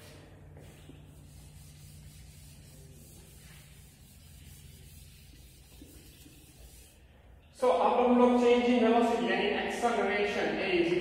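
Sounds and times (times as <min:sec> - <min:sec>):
duster rubbing on blackboard: 0:00.0 - 0:07.0.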